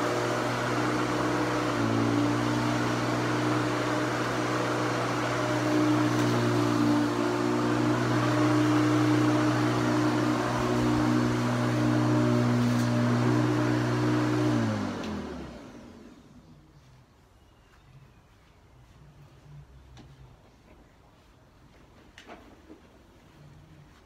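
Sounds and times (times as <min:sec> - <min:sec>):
electric lawn mower running: 0:00.0 - 0:16.5.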